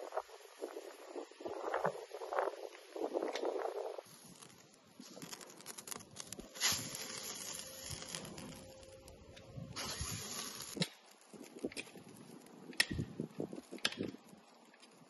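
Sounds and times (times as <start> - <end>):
hiss: 0.0 - 9.1, 9.7 - 10.9.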